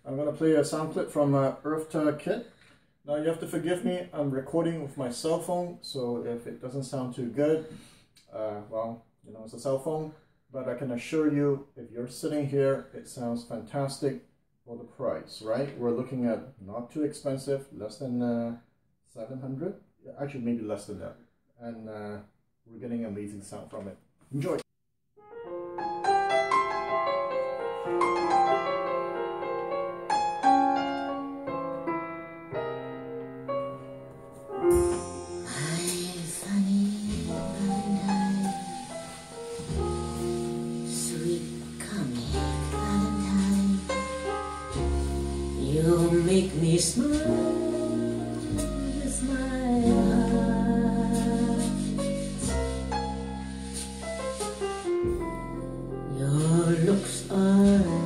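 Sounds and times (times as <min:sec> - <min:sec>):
piano music through speakers: 0:25.2 - 0:58.0
hiss: 0:35.8 - 0:50.5, 0:51.1 - 0:55.0.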